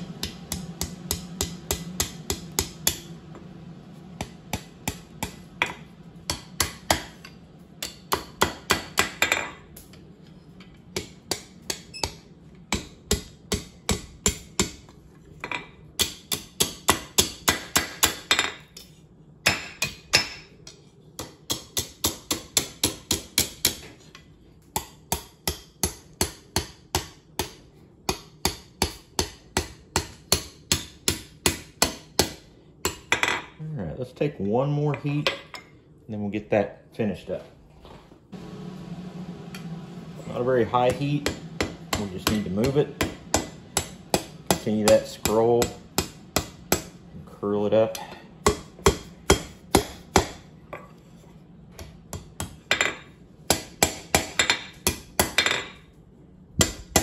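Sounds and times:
hammer striking steel on anvil: 0:00.0 - 0:03.1, 0:04.2 - 0:10.0, 0:11.0 - 0:14.8, 0:15.4 - 0:18.6, 0:21.2 - 0:23.8, 0:24.8 - 0:33.5, 0:40.7 - 0:47.0, 0:47.9 - 0:50.9, 0:52.1 - 0:55.8, 0:56.6 - 0:57.0.

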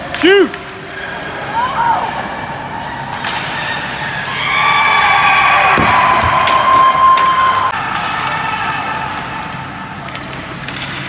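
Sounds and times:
spectators cheering and shouting: 0:01.1 - 0:09.8.

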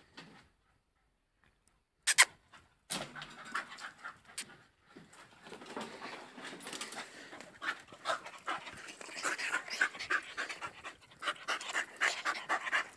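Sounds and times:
dog panting: 0:02.5 - 0:05.4, 0:06.0 - 0:12.9.

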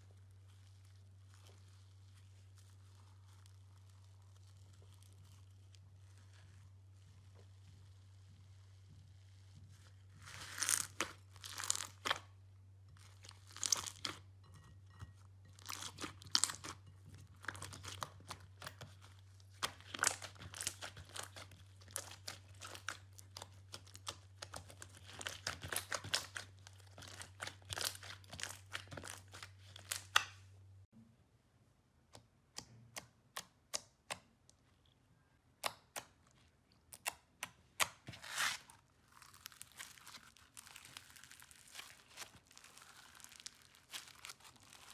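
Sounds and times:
crunchy crackles of foam slime: 0:00.0 - 0:12.4, 0:13.0 - 0:14.3, 0:15.0 - 0:30.3, 0:38.0 - 0:44.9
slime crackling and popping: 0:00.0 - 0:30.4, 0:36.9 - 0:44.9
low steady hum: 0:00.0 - 0:33.2.

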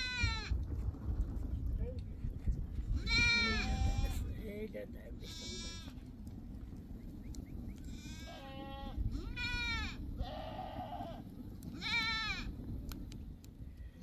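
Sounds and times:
low steady rumble: 0:00.0 - 0:14.0
goats bleating: 0:03.0 - 0:04.3, 0:05.2 - 0:06.0, 0:07.9 - 0:11.2, 0:11.8 - 0:12.5.

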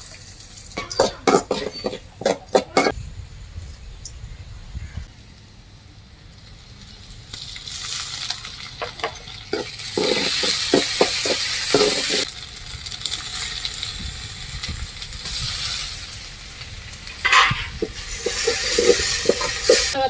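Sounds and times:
onions sizzling in oil: 0:00.0 - 0:02.9, 0:05.4 - 0:20.0.

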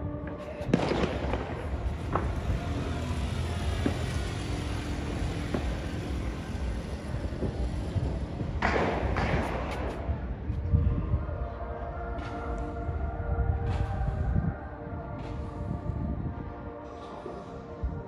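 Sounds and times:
rumble of distant fireworks: 0:00.0 - 0:18.0
faint firework cracks: 0:00.7 - 0:02.4.

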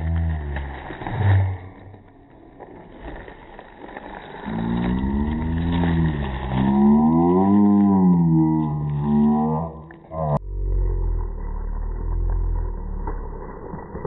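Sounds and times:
drawn-out moaning tone: 0:00.0 - 0:03.0, 0:04.4 - 0:14.0
plastic bag crinkling: 0:00.0 - 0:10.1.

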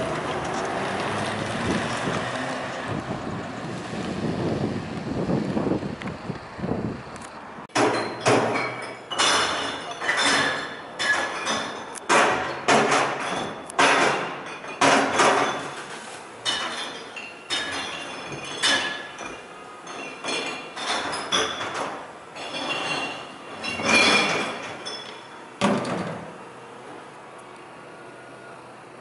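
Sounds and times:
glass bottles clinking and crashing: 0:07.7 - 0:25.3.

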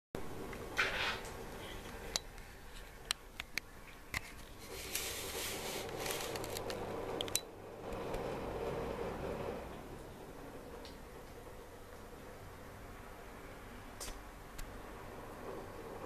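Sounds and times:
scraping and rustling: 0:04.2 - 0:07.2
kibble rattling in plastic: 0:05.5 - 0:06.8.

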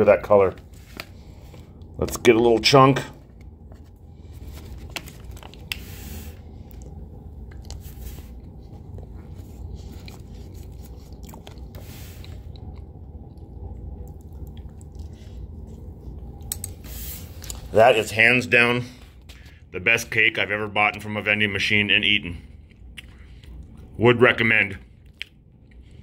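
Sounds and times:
low steady hum: 0:00.0 - 0:26.0
chewing: 0:06.6 - 0:16.8, 0:22.5 - 0:24.0, 0:24.9 - 0:26.0.

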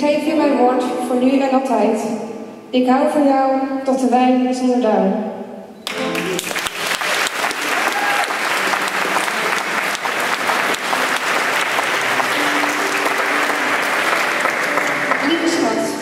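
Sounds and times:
people clapping: 0:05.8 - 0:16.0.

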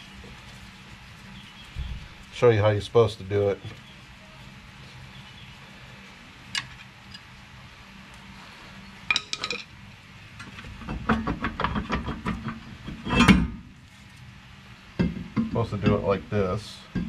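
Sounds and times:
metallic clinks and knocks of tools: 0:09.1 - 0:09.7
metal clunk and scrape: 0:10.4 - 0:13.7.

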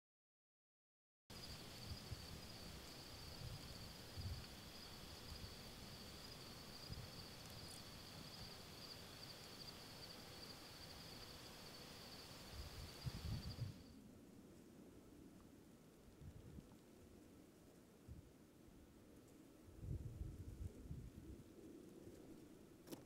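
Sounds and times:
insects buzzing trill: 0:01.3 - 0:13.9.

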